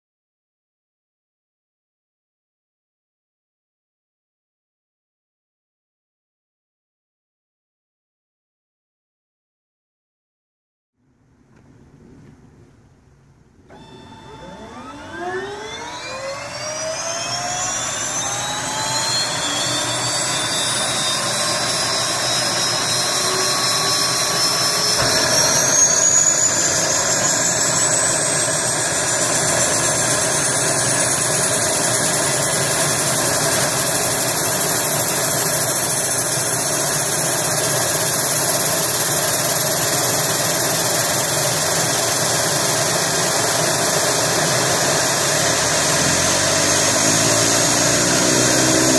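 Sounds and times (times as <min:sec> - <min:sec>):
turboprop engine whine: 0:11.2 - 0:48.9.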